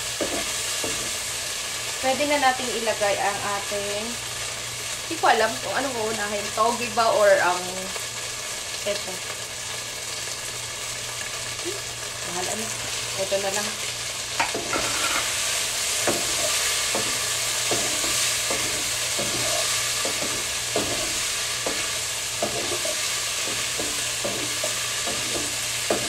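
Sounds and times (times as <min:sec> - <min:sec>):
shrimp sizzling in a pan: 0:00.0 - 0:26.0
utensil scraping a pan: 0:14.4 - 0:26.0.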